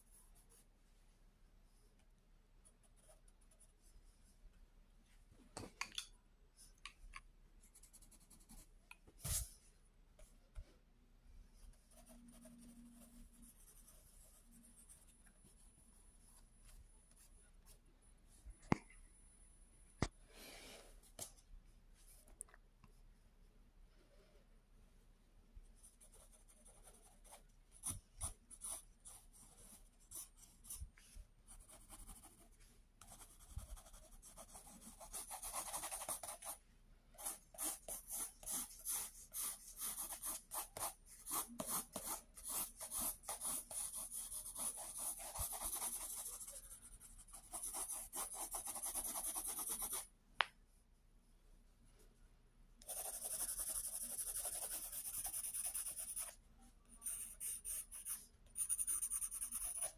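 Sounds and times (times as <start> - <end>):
pencil scratching on paper: 25.8 - 30.9, 31.5 - 36.6, 37.2 - 50.1, 52.8 - 56.4, 57.0 - 59.9.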